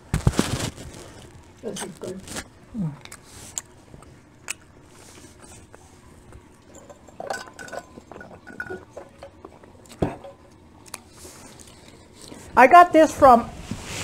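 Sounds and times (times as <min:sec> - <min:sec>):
drinking from a glass: 0:06.4 - 0:10.4
dishes and utensils clinking: 0:06.6 - 0:10.5.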